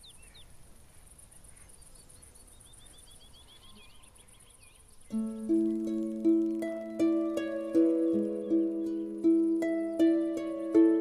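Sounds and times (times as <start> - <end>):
bird chirping: 0.0 - 11.0
faint high hiss: 0.0 - 11.0
plucked-string music: 5.1 - 11.0.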